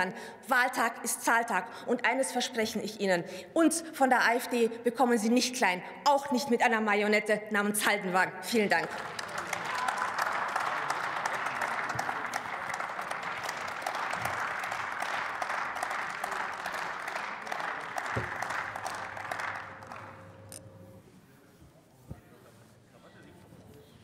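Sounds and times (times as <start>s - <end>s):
crowd applauding: 8.8s - 21.0s.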